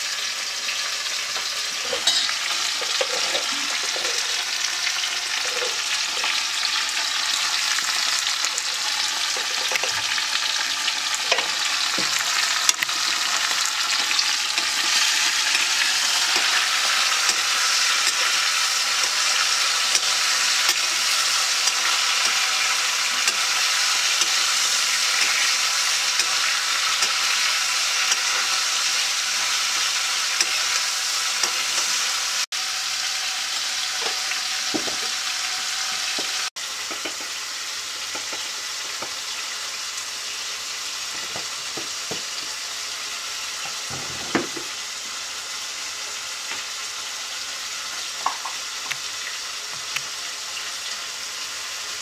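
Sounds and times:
vegetables sizzling in oil: 0.0 - 52.0
pan being stirred: 1.3 - 32.4.

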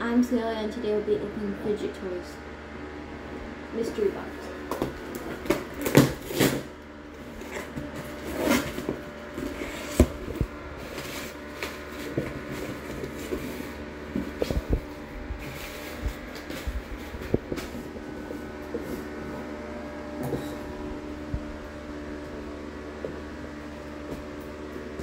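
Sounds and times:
cardboard tearing: 5.1 - 14.6.

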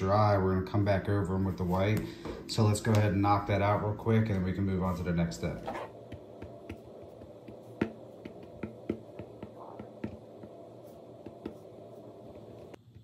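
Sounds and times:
steady low hum: 0.0 - 13.0
marker tapping on plastic: 6.0 - 11.7.

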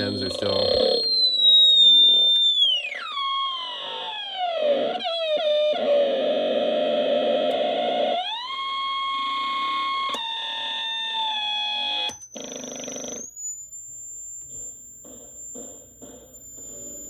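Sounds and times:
distorted gliding electronic tones: 0.0 - 6.6.

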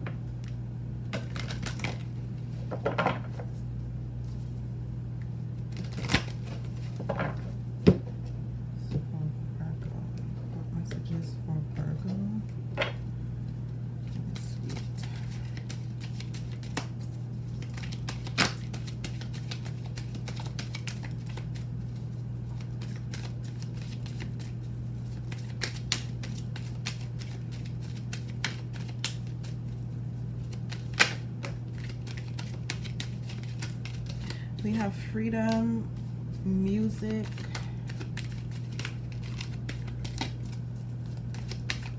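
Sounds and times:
steady low hum: 0.0 - 41.9
cards being shuffled: 1.1 - 3.6, 5.6 - 7.2, 14.0 - 34.8, 35.5 - 41.9.

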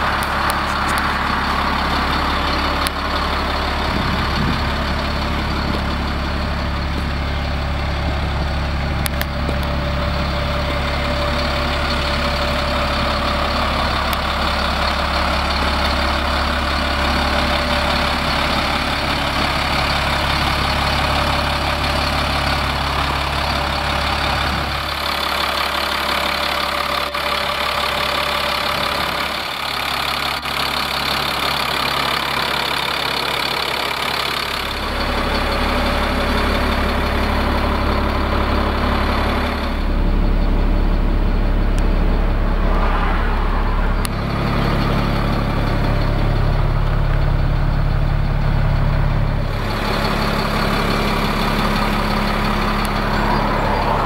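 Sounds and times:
diesel engine idling: 0.0 - 54.0.

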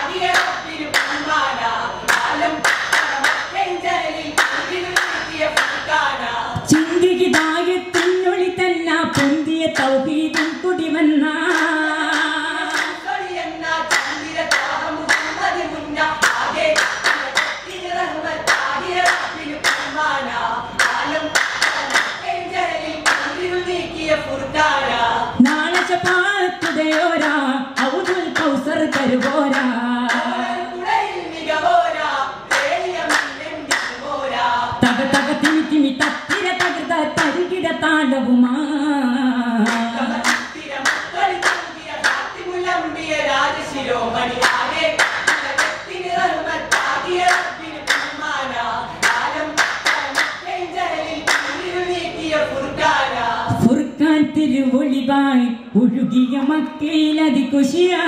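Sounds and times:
sharp hand claps: 0.3 - 1.2, 2.1 - 3.5, 4.4 - 5.8, 6.8 - 8.2, 9.1 - 10.6, 11.5 - 13.0, 13.9 - 15.5, 16.2 - 17.7, 18.5 - 20.0, 20.8 - 22.2, 23.0 - 23.3, 25.4 - 30.3, 32.5 - 34.0, 35.4 - 37.4, 39.7 - 42.3, 44.4 - 45.8, 46.7 - 48.2, 49.0 - 50.4, 51.3 - 51.6.

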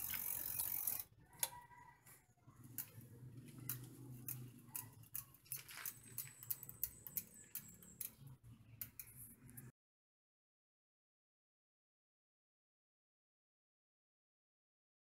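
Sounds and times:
bike freewheel hub ticking: 0.0 - 1.5, 2.6 - 9.7.

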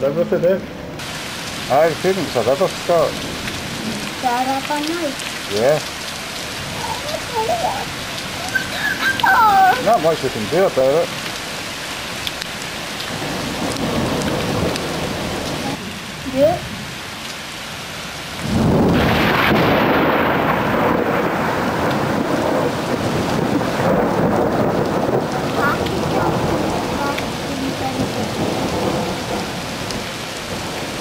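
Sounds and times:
heavy rain and hail: 0.0 - 31.0
thunderclap: 13.1 - 15.8, 18.4 - 31.0.

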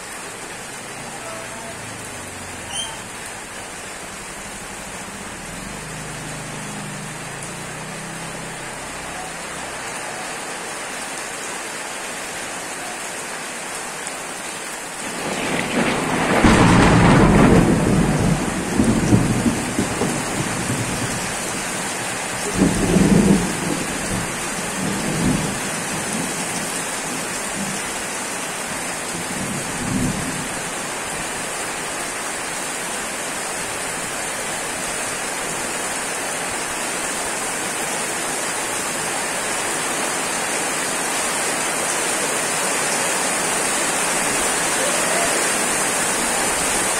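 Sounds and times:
heavy rain on wet street: 0.0 - 46.9
thunder rumbling: 15.0 - 21.4, 22.4 - 25.6.

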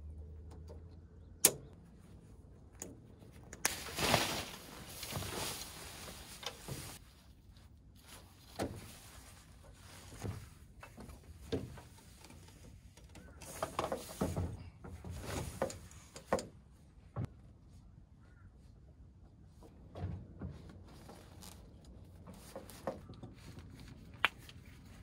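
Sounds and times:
faint outdoor background: 0.0 - 25.0
short rustles: 3.6 - 16.3.

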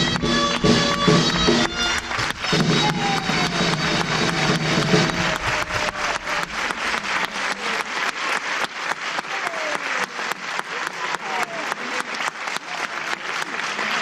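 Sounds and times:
dance music: 0.0 - 7.8
audience applauding: 0.0 - 14.0
hands clapping a quick beat: 0.0 - 14.0.

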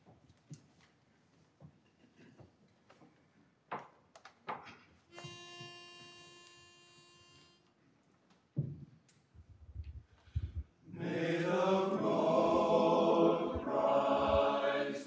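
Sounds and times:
pitch pipe note: 5.2 - 7.6.

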